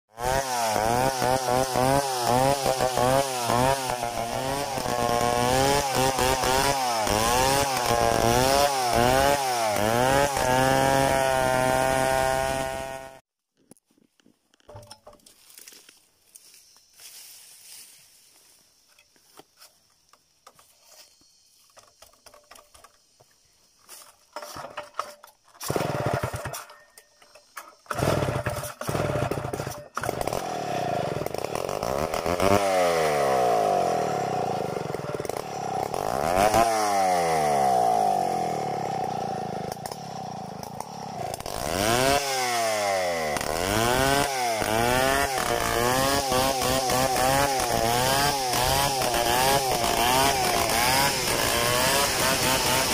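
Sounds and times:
chainsaw revving: 0.1 - 13.2, 24.5 - 26.8, 27.4 - 52.9.

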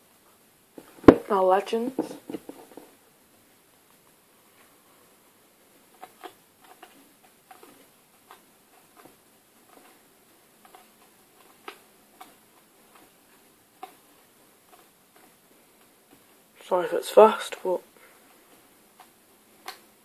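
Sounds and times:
trading cards flicked by hand: 18.9 - 20.0.

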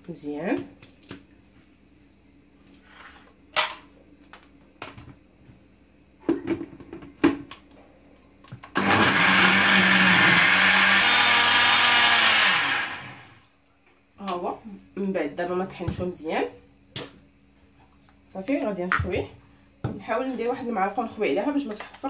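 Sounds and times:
blender running: 8.7 - 13.5.

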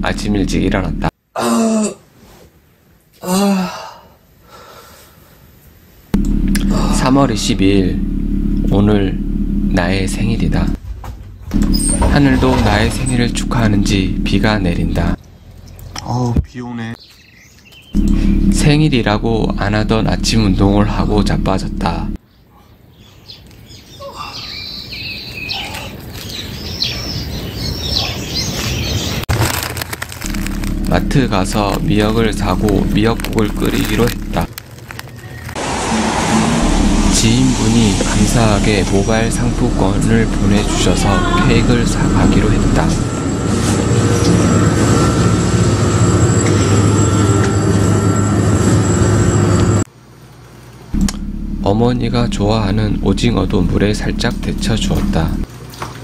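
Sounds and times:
man groaning: 3.2 - 4.0
soft breathing: 4.0 - 5.5
birds chirping: 13.0 - 29.3
rain hissing: 29.3 - 42.8.

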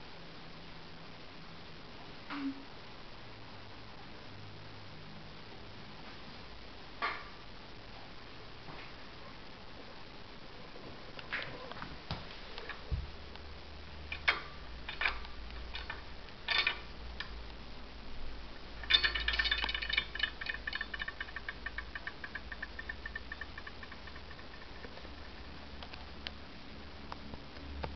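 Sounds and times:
regulator rattling buzz: 18.2 - 26.2.

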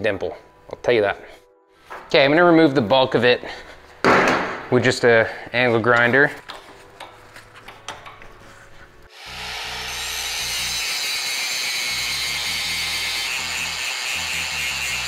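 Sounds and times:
angle grinder grinding steel: 9.1 - 15.0.

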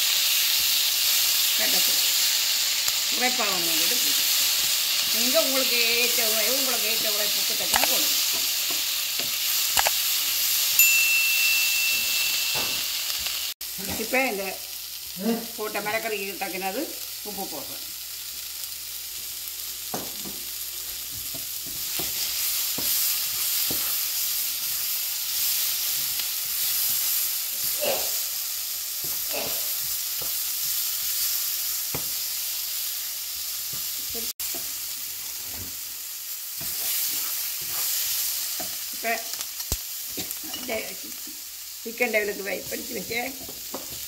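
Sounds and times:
vegetables sizzling in a frying pan: 0.0 - 44.0
wooden spatula scraping a pan: 36.6 - 38.8.

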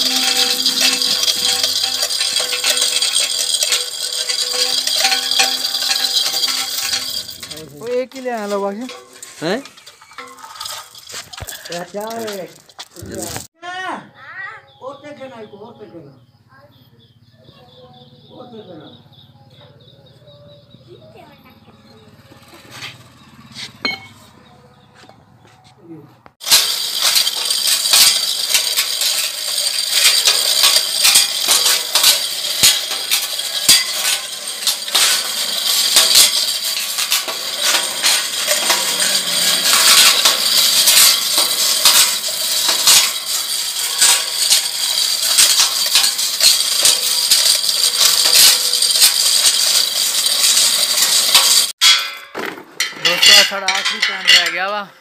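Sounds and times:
steel chain rattling and clinking: 0.0 - 13.5, 26.4 - 54.9.

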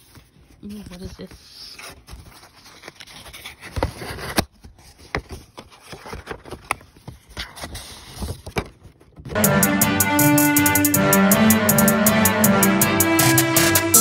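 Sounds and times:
cardboard packaging handled: 0.0 - 9.4
music with a beat: 9.4 - 14.0.

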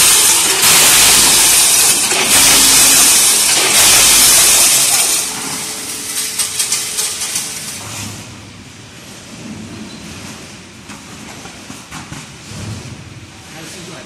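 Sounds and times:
metal springs clattering: 0.0 - 8.2.

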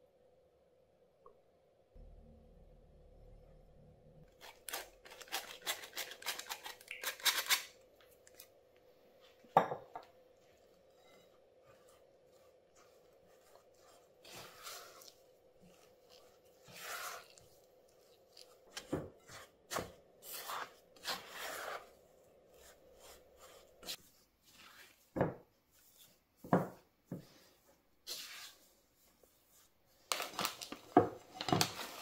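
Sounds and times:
spatula scraping glass bowl: 10.4 - 25.0.

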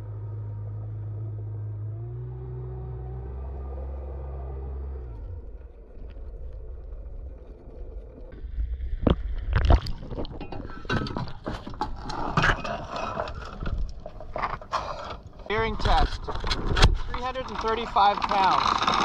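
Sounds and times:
anchor chain clanking: 10.3 - 19.0.

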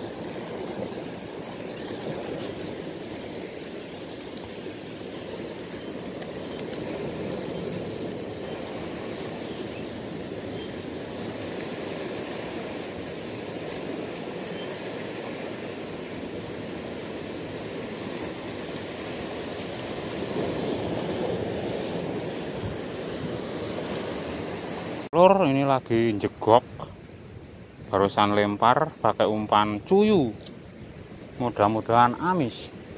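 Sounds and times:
sea surf washing against rocks: 0.0 - 25.1.

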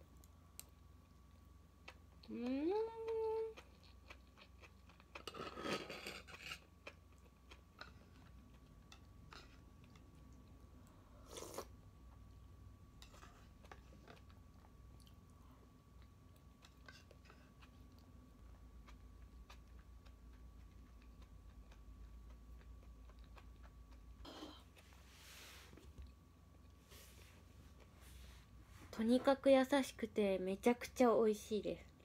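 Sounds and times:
chewing crisp raw vegetables: 0.6 - 10.6, 16.0 - 25.0.

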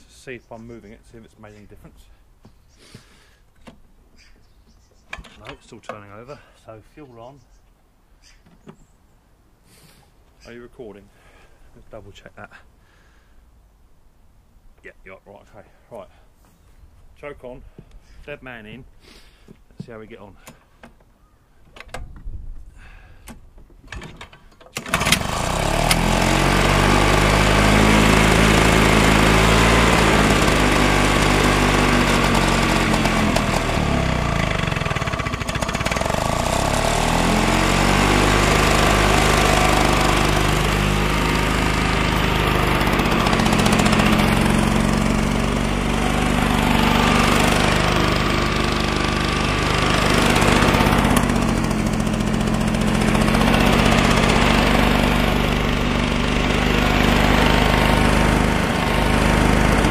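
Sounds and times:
person talking: 0.0 - 2.1, 5.4 - 7.5, 10.4 - 11.1, 14.8 - 16.2, 19.8 - 20.4
hover mower engine running unevenly: 24.8 - 59.9.

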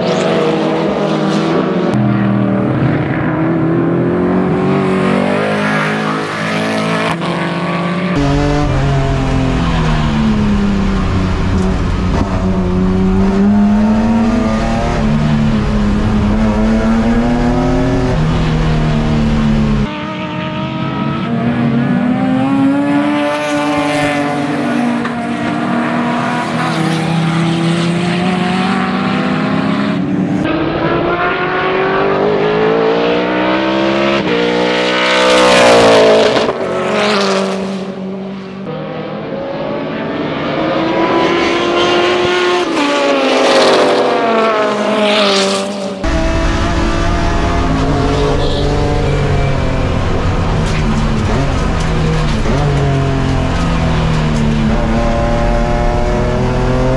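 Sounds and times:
race car engine in cockpit: 0.0 - 56.9
race cars passing: 0.0 - 56.9.

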